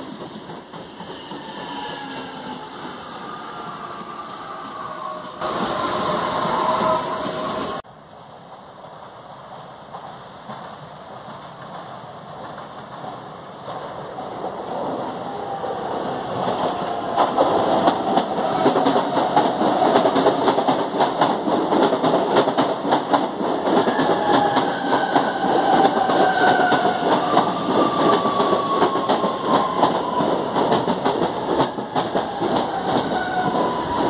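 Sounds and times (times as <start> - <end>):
train whine falling in pitch: 1.0 - 7.8
train wheels clicking over rail joints: 9.4 - 14.8, 16.4 - 34.0.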